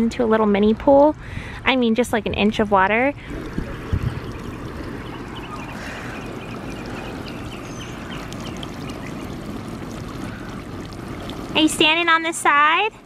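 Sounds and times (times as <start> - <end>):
sprinkler water jets spraying: 3.3 - 13.0.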